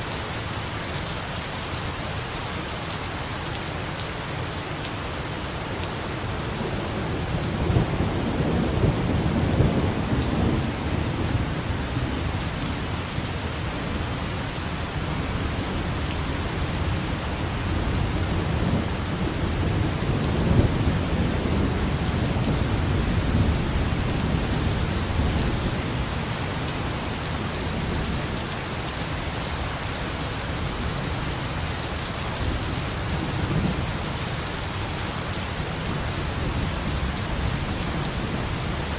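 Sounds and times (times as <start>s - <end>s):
heavy rain: 0.0s - 38.9s.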